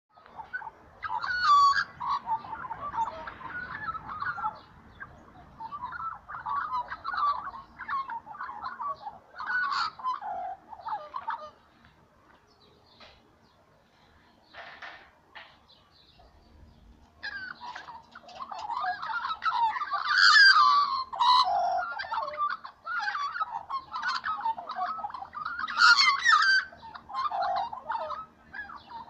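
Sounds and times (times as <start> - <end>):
magpies warbling: 0.1 - 13.6, 14.4 - 29.0.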